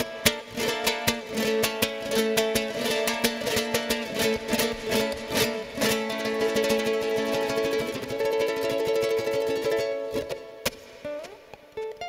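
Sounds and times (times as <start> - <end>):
ukulele strums and plucked notes: 0.0 - 12.0.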